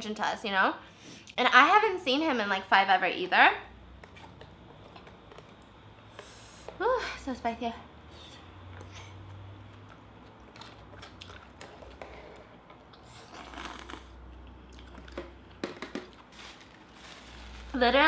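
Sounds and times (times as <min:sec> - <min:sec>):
person chewing: 0:08.6 - 0:16.3
person slurping: 0:11.2 - 0:15.1.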